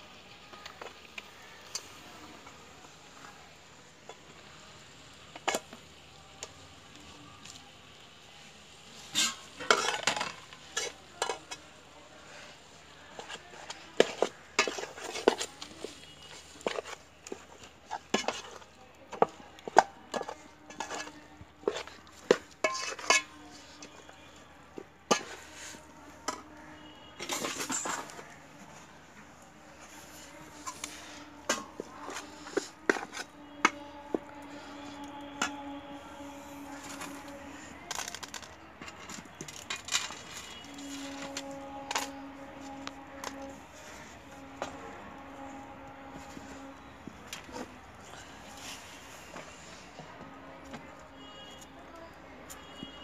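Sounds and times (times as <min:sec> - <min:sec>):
spoon scraping a pot: 0:09.0 - 0:11.6, 0:13.1 - 0:24.0, 0:29.8 - 0:35.7.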